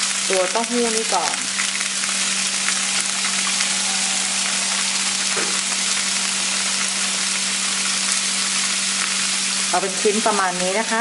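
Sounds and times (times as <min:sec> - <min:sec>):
tofu sizzling in a frying pan: 0:00.0 - 0:11.0
low hum: 0:01.5 - 0:09.1.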